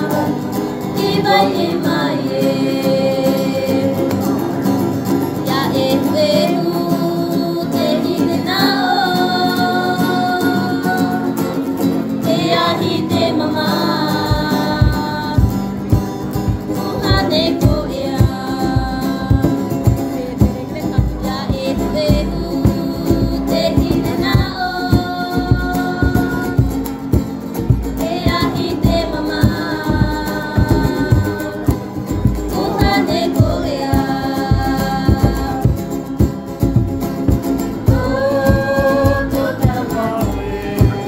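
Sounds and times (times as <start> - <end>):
song with sung melody: 0.0 - 41.0
steady low drumbeat: 14.2 - 41.0.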